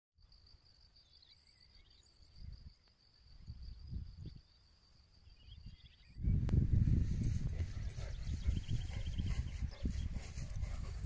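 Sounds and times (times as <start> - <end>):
insect trill: 0.2 - 6.3
bird chirps: 0.9 - 6.4
wind buffeting microphone: 3.4 - 4.4, 5.5 - 11.0.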